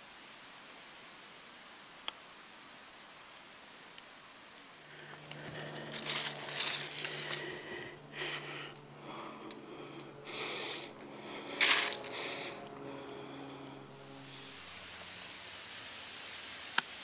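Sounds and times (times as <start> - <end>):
faint low hum: 4.7 - 16.0
dry leaves crunching and rustling: 5.0 - 7.8, 11.5 - 12.2.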